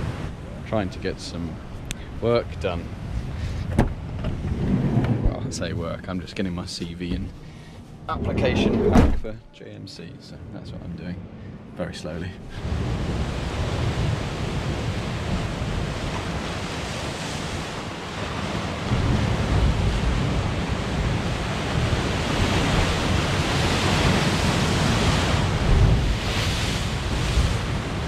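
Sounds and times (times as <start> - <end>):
waves crashing over rocks: 0.0 - 0.4, 12.5 - 28.0
wind rumbling on microphone: 1.5 - 6.1, 8.0 - 9.4, 12.5 - 28.0.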